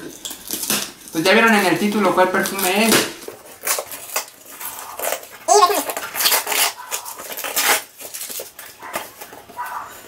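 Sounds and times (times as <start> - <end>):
cardboard box tearing open: 2.4 - 9.3.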